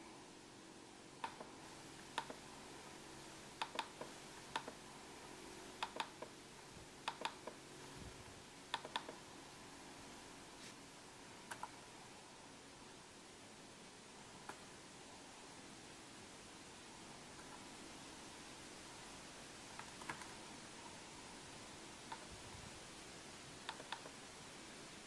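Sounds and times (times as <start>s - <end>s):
faint steady hum: 0.0s - 25.0s
keyboard keys clicking: 7.1s - 7.6s, 19.7s - 20.4s.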